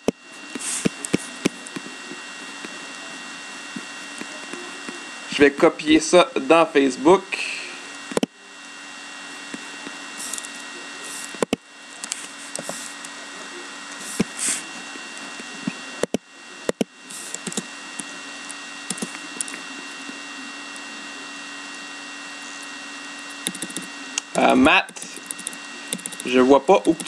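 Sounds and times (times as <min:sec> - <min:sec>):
steady electrical hum and hiss: 0:00.0 - 0:27.0
computer keyboard and mouse clicks: 0:16.0 - 0:17.7, 0:18.9 - 0:19.6, 0:23.4 - 0:23.9, 0:24.9 - 0:27.0.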